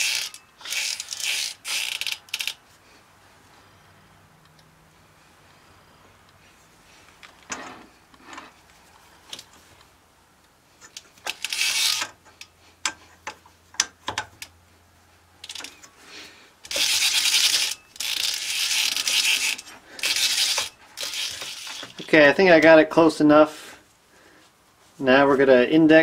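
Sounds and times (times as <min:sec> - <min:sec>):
metal rubbing and scraping: 0:00.0 - 0:02.6, 0:16.7 - 0:22.4.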